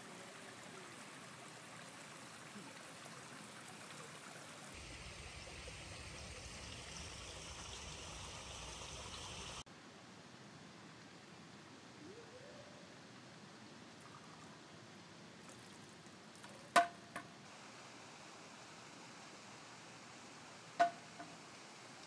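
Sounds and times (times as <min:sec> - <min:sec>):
running water rushing: 0:00.0 - 0:09.7.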